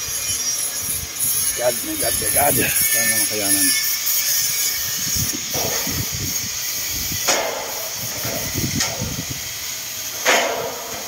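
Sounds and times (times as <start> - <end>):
steady hiss: 0.0 - 11.0
wind buffeting microphone: 0.8 - 3.4, 4.8 - 9.6
sharp knocks: 10.2 - 10.8.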